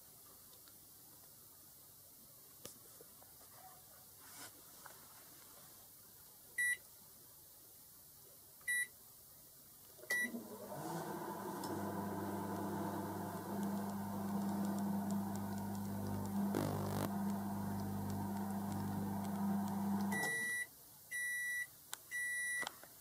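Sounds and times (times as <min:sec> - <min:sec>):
microwave humming: 0:10.2 - 0:20.6
microwave short high beeps: 0:20.1 - 0:22.6.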